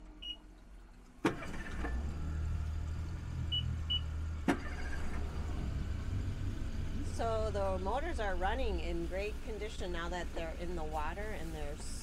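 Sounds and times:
outboard motors idling: 0:00.6 - 0:12.0.

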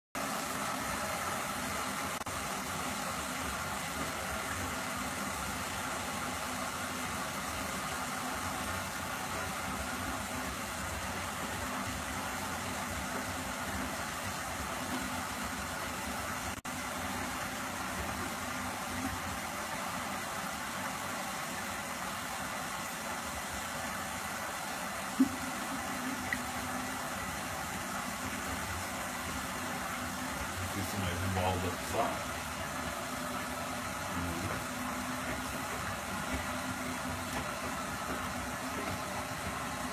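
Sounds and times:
washing machine running: 0:00.2 - 0:39.9.

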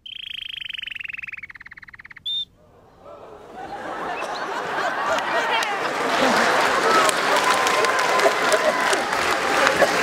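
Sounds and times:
songbird trill: 0:00.0 - 0:02.6
audience chatter: 0:02.6 - 0:10.0
audience clapping: 0:03.0 - 0:10.0.

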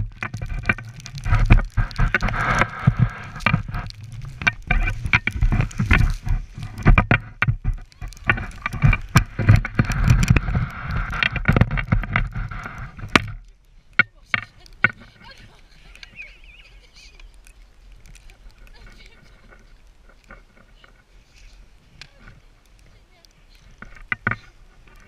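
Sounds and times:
wind buffeting microphone: 0:00.0 - 0:13.4, 0:14.0 - 0:25.0
skis hissing over snow: 0:01.1 - 0:06.8, 0:14.7 - 0:19.8, 0:20.7 - 0:23.8.

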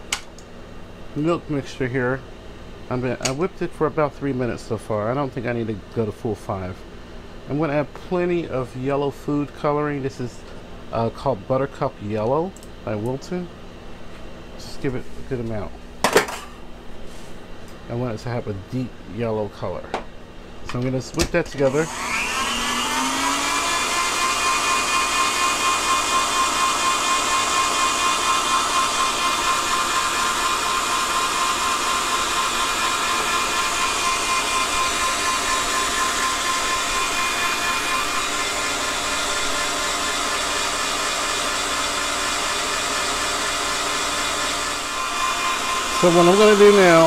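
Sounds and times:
stand mixer motor whine: 0:21.6 - 0:47.0
whisk whirring: 0:21.6 - 0:47.0.

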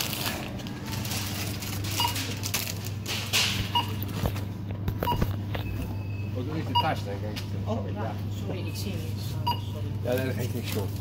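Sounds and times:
checkout clatter: 0:00.0 - 0:11.0
barcode scanner beeping: 0:01.9 - 0:02.3, 0:03.7 - 0:04.0, 0:05.0 - 0:07.0, 0:09.4 - 0:09.8.

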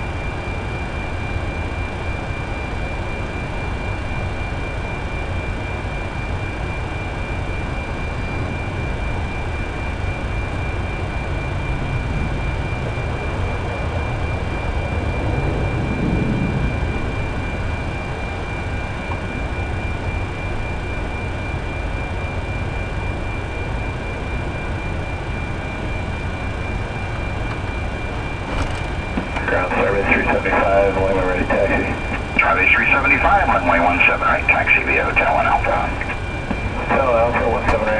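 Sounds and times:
steady high whine: 0:00.0 - 0:37.9
aircraft cabin rushing hum: 0:06.2 - 0:20.9, 0:24.5 - 0:37.9.

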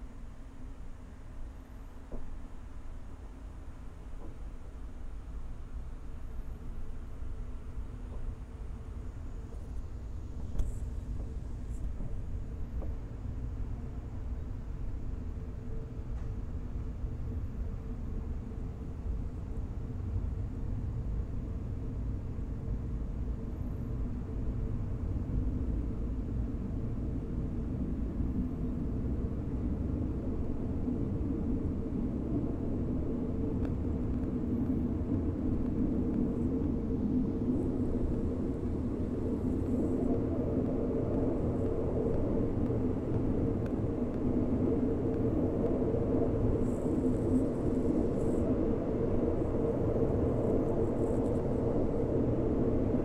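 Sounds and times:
train carriage rumbling on track: 0:04.0 - 0:18.5.

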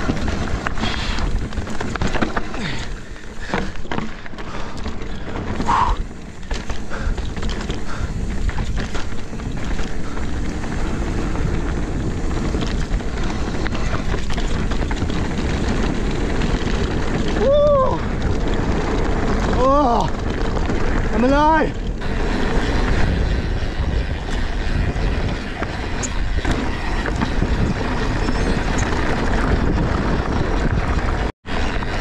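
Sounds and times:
bicycle tyre noise: 0:00.0 - 0:32.0
bike rattling and knocking: 0:00.0 - 0:32.0
wind rushing on microphone: 0:00.0 - 0:32.0
short squeak: 0:28.0 - 0:28.9.

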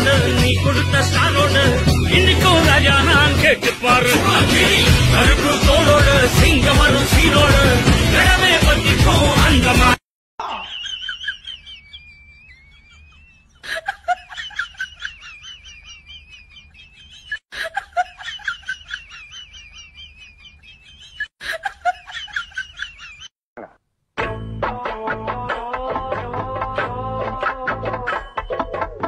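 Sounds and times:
squeaky comic laughter: 0:10.4 - 0:23.3.

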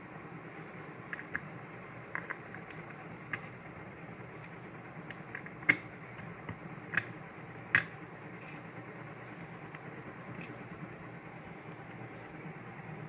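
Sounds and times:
plastic parts clicking together: 0:01.1 - 0:01.5, 0:02.1 - 0:03.5, 0:04.4 - 0:08.0.

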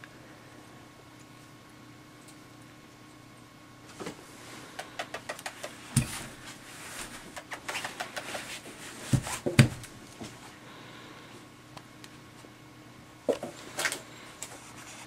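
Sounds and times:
dull thumps: 0:09.1 - 0:09.9.

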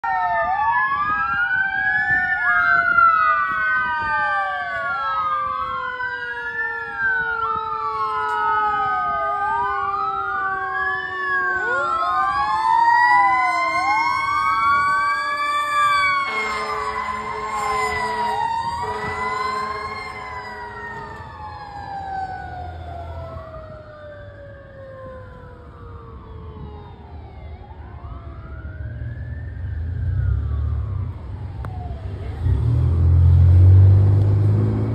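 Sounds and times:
fire truck sirens wailing: 0:00.0 - 0:34.9
air horn blasts: 0:16.1 - 0:21.2.

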